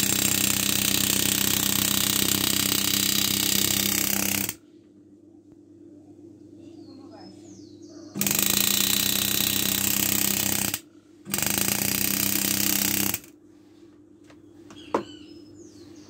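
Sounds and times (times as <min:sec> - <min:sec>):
engraving tool buzzing: 0:00.0 - 0:04.6, 0:08.2 - 0:13.3.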